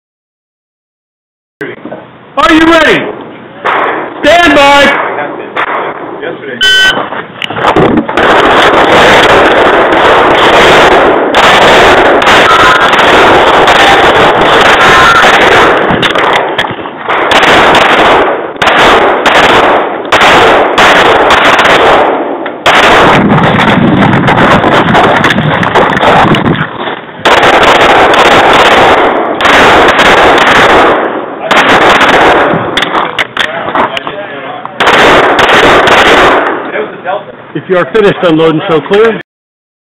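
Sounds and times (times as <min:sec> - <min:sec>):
rapid pistol shots: 0:03.6 - 0:06.3, 0:07.0 - 0:26.6, 0:27.2 - 0:33.3, 0:34.8 - 0:36.6.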